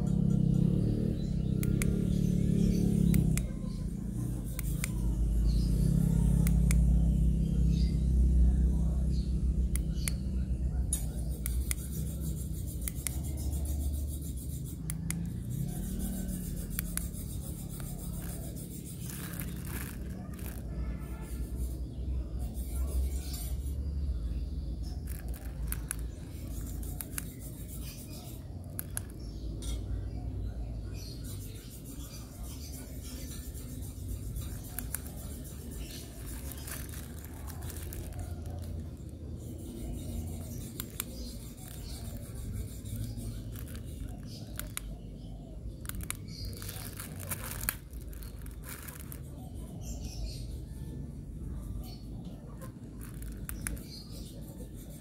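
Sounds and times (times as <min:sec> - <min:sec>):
plastic wrap crinkling: 0:34.7 - 0:39.0, 0:45.8 - 0:49.3.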